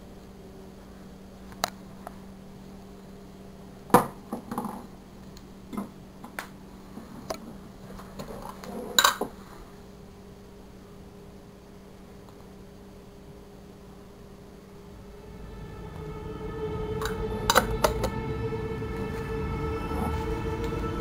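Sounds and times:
low hum: 10.0 - 21.0.

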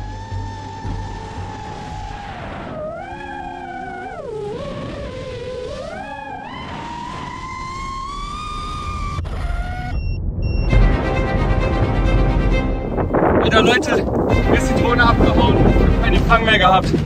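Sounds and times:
quadcopter motors whining: 0.0 - 10.0.

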